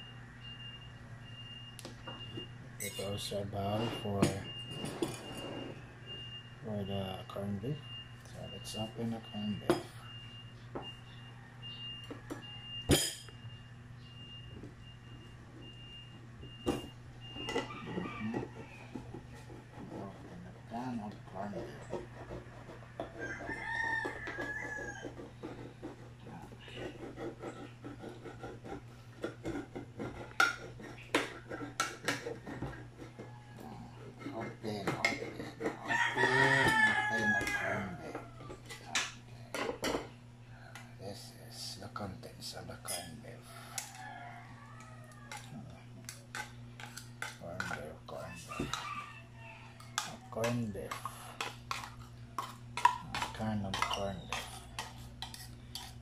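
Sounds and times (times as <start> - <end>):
rooster crowing: 11.2 - 12.7, 17.4 - 19.3, 21.6 - 25.6, 33.0 - 34.2, 35.6 - 38.7, 43.5 - 45.8, 48.1 - 50.5.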